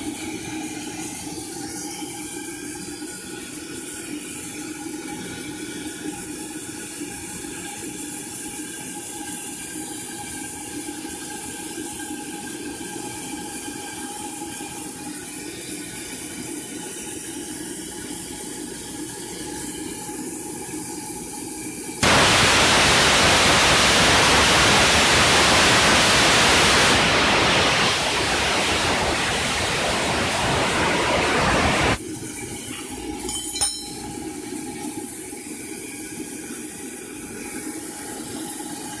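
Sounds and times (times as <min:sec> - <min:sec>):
loud rush of escaping steam: 0:22.0 - 0:32.0
steam locomotive hissing: 0:22.0 - 0:32.0.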